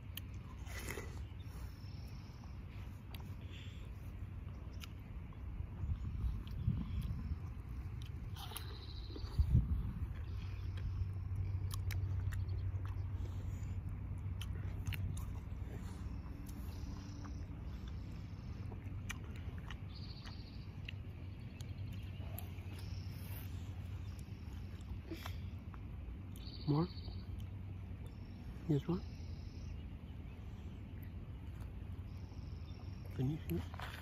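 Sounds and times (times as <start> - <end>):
child chewing watermelon: 0.0 - 34.0
low rumble: 0.0 - 34.0.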